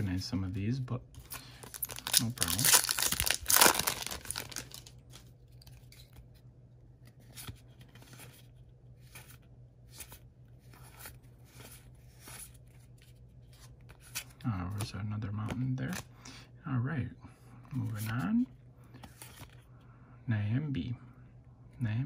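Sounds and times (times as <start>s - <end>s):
foil wrapper tearing: 1.6s - 4.9s.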